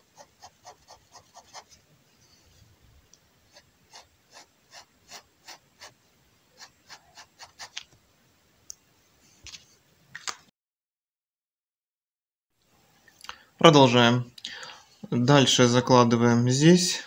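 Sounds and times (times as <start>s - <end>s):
pen strokes on paper: 0.0s - 2.6s, 3.5s - 7.9s.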